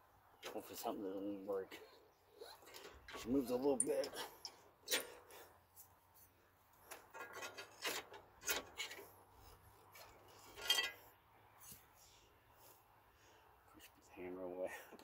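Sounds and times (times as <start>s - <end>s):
metal tools scraping and clinking: 2.4s - 5.3s, 6.9s - 9.1s, 10.0s - 11.1s.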